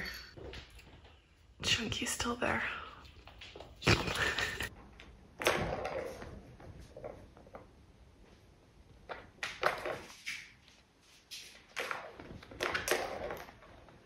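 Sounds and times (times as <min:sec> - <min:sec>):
balls clattering round plastic tracks: 0:11.4 - 0:14.0.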